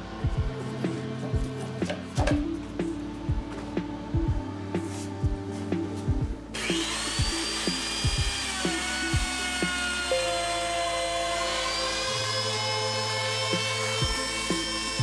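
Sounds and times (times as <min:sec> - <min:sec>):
electric router whine: 0:06.4 - 0:15.0.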